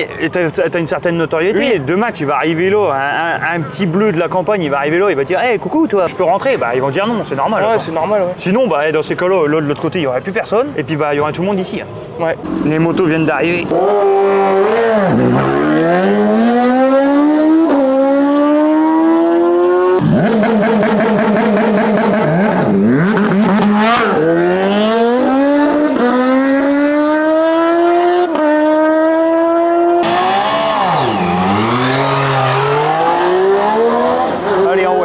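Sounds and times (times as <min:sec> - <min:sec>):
vehicle engine at full throttle: 0:12.4 - 0:35.0.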